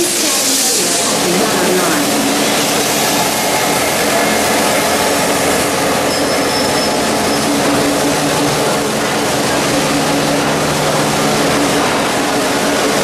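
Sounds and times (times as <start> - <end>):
train rumbling on rails: 0.0 - 13.0
high-pitched wheel squeal: 6.1 - 7.6.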